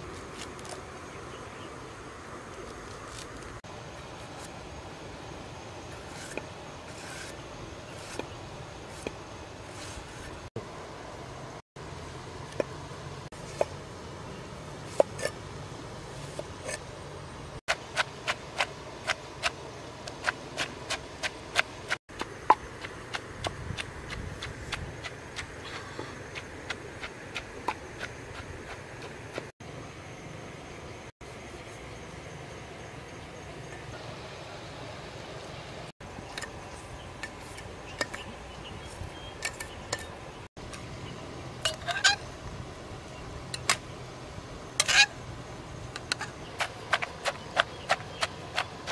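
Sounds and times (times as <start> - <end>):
low background noise: 0.0 - 48.9
cleaver slicing vegetables: 17.7 - 29.5, 46.0 - 48.9.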